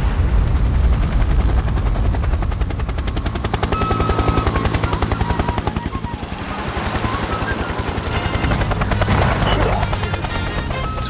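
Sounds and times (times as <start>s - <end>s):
deep rumble: 0.0s - 3.7s
cartoon helicopter rotor chopping: 1.1s - 11.0s.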